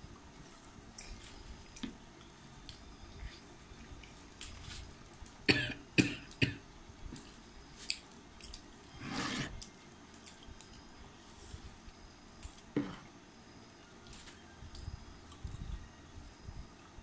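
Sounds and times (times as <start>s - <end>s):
person coughing: 5.5s - 6.6s.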